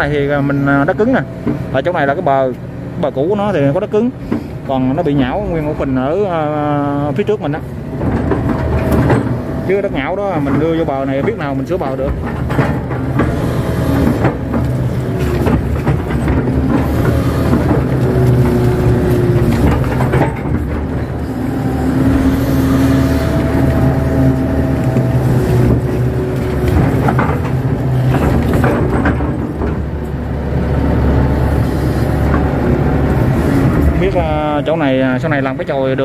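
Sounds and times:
hydraulic whining tones: 0:00.0 - 0:35.6
excavator diesel engine running: 0:00.0 - 0:36.0
knocks: 0:10.3 - 0:30.1.

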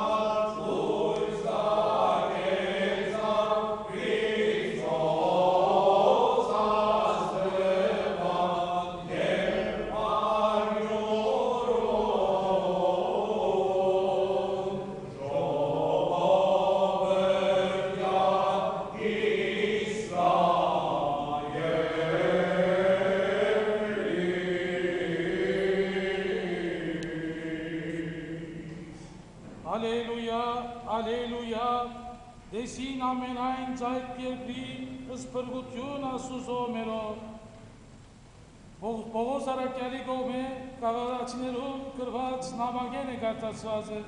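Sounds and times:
church choir chanting a hymn: 0:00.0 - 0:29.1.

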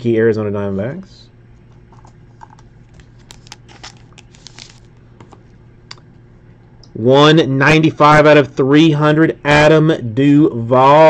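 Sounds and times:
low steady hum: 0:00.0 - 0:11.0
trading cards handled: 0:01.6 - 0:05.6
foil wrapper crinkling: 0:02.4 - 0:05.0.

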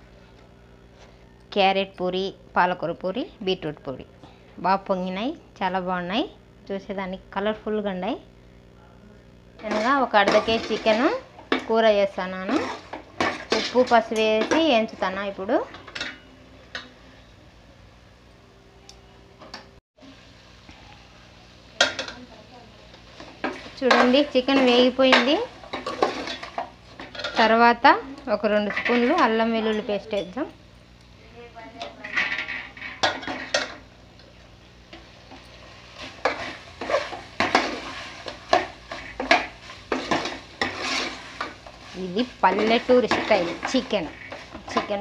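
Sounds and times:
spoon scraping a metal pot: 0:09.6 - 0:11.6, 0:12.4 - 0:14.9, 0:36.0 - 0:45.0
chicken frying faint sizzle: 0:20.0 - 0:45.0.

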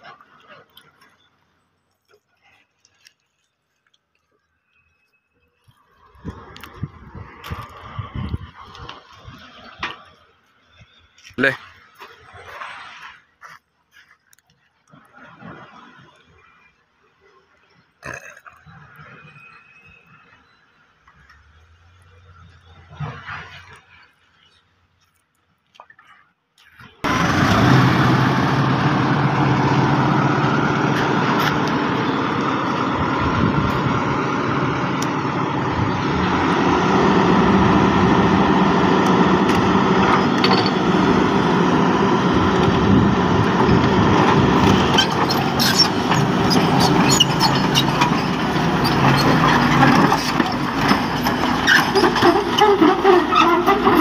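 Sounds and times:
excavator diesel engine running: 0:27.0 - 0:54.0.

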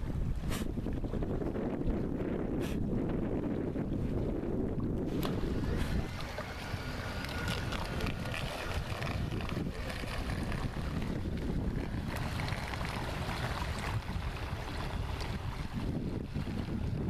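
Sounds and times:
wind rumble on microphone: 0:00.0 - 0:17.0
water hissing and crackling: 0:05.1 - 0:14.4.

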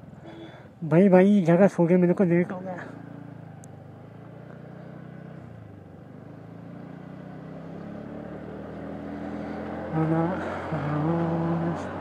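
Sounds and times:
small motorbike engine accelerating: 0:02.8 - 0:12.0.

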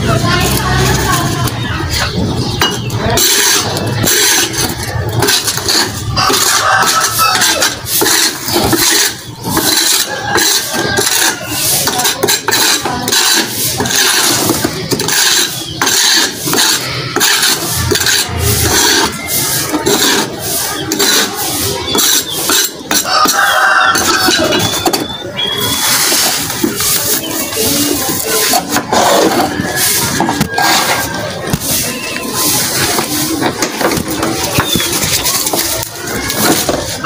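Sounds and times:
brush and dustpan scraping brick: 0:00.0 - 0:37.0.

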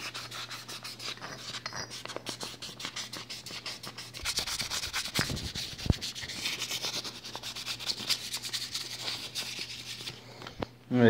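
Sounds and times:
sandpaper rasping on metal: 0:00.0 - 0:10.1.

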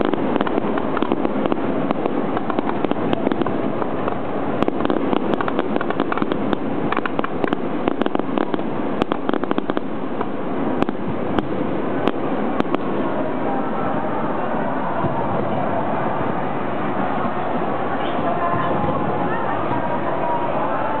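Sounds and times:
firework shells bursting: 0:00.0 - 0:13.0
rapid crackling and popping: 0:00.0 - 0:13.4
steady rushing noise: 0:00.0 - 0:21.0.

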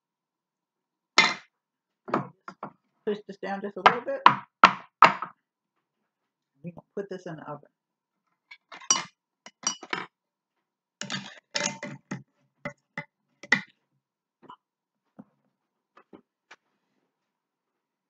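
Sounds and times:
lid scraping and clinking on jar: 0:08.5 - 0:10.1, 0:11.0 - 0:12.2.

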